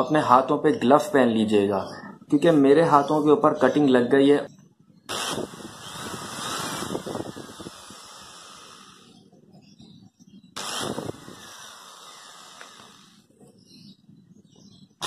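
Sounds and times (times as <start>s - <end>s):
electric drill drilling a can: 5.1s - 9.2s, 10.6s - 13.3s.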